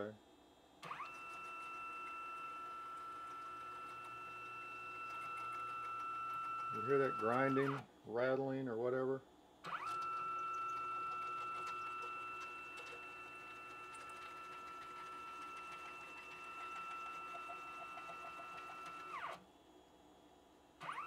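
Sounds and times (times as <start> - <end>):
stepper motor whine: 0.8 - 7.8, 9.7 - 19.4.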